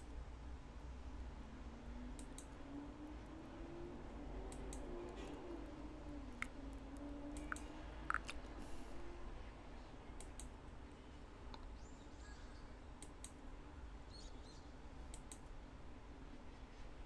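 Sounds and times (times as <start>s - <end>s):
computer mouse clicks: 2.2s - 2.6s, 7.3s - 8.4s, 10.2s - 10.5s, 13.0s - 13.4s, 15.1s - 15.5s.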